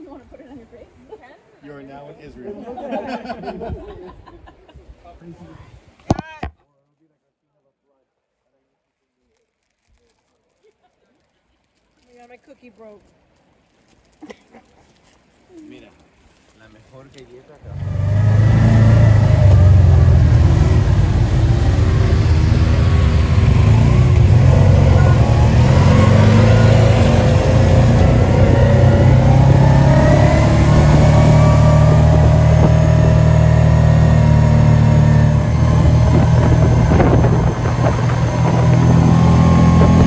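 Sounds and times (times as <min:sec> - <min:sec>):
vehicle engine running: 0:17.7 - 0:40.0.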